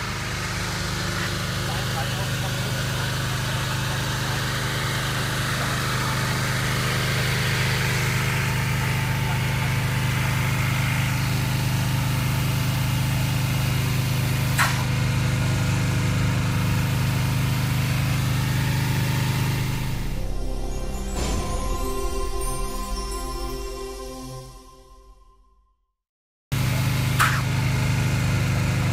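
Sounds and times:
motor hum: 0.0 - 21.4.

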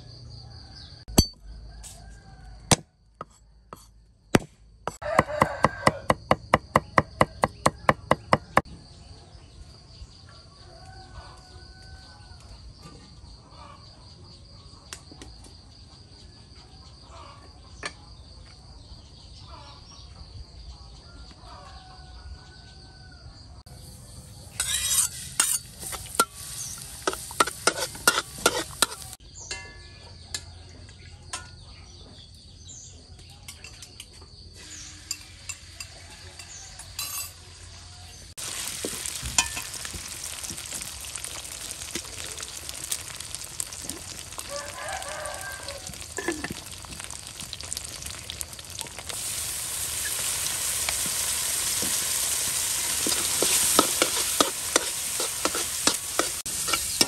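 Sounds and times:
insects droning: 0.0 - 19.8, 21.5 - 29.2, 33.8 - 57.0
rooster crowing: 0.4 - 3.0, 5.0 - 6.3, 10.5 - 12.5, 21.2 - 23.6, 40.2 - 56.3
cleaver chopping on wooden board: 2.7 - 3.4, 4.4 - 8.6
food sizzling in a wok: 23.7 - 29.2, 34.6 - 57.0
metal spatula clattering on pan: 24.6 - 30.4, 39.4 - 40.9, 53.0 - 57.0.

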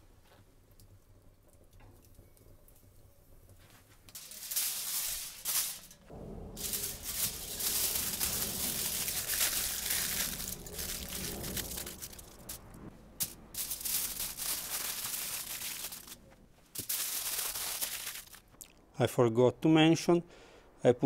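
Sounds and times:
aluminium foil crinkling: 3.6 - 18.6.

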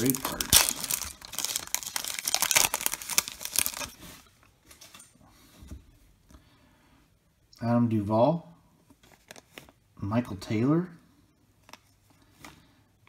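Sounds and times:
wrapper tearing and crinkling: 0.0 - 4.3
soft rustles of cards: 8.8 - 9.9, 11.2 - 12.8.

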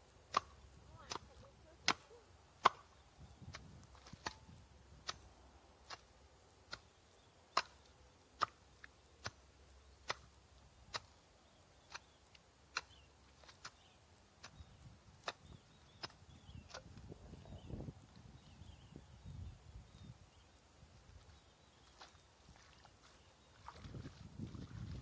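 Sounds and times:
mattock chopping into soil: 0.3 - 2.0, 2.6 - 6.1, 6.7 - 11.2, 11.8 - 17.1.

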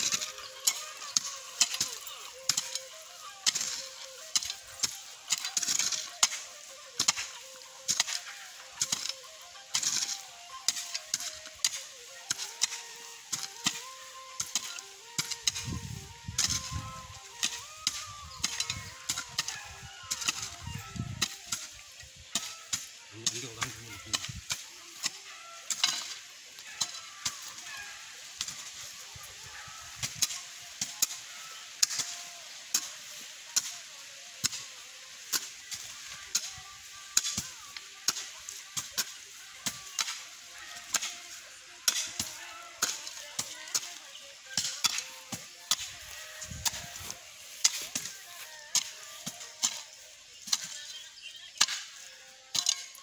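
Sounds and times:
hoes chopping into soil: 0.0 - 21.7, 41.9 - 50.9, 51.6 - 53.0.

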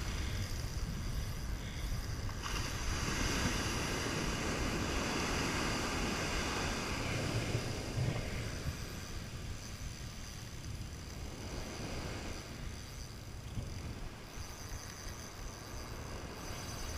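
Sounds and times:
wind rumbling on microphone: 0.0 - 16.9
ocean surf washing up beach: 2.3 - 10.2, 11.3 - 12.7.

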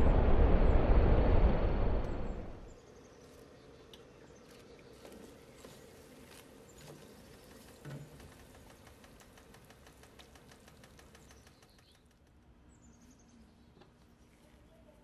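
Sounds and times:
heating pot crackling and ticking: 5.0 - 12.4.

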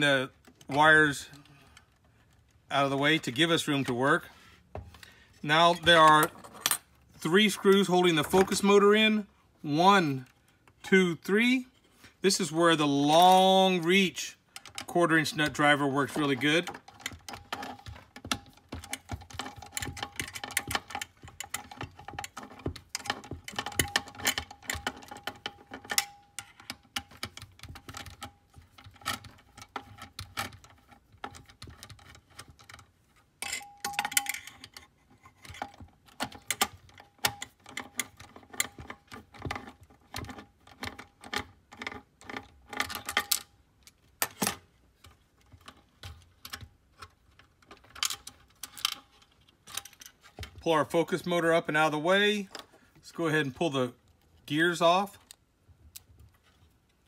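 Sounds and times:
small parts clicking and rattling: 13.1 - 53.0.

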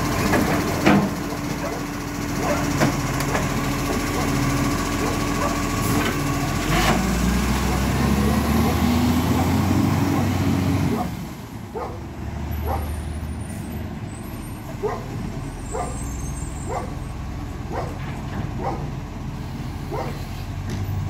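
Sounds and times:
garbage truck diesel engine: 0.0 - 21.0
dog barking: 1.6 - 2.7, 5.0 - 5.6, 11.7 - 12.0, 12.6 - 12.9, 14.8 - 16.0, 16.7 - 17.0, 17.7 - 18.0, 18.6 - 18.9, 19.9 - 20.2.

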